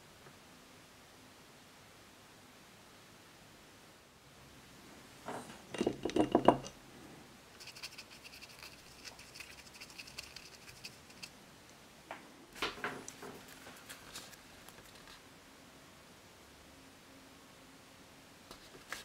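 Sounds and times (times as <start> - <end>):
brush scratching wet paint: 7.6 - 11.4, 13.4 - 15.2.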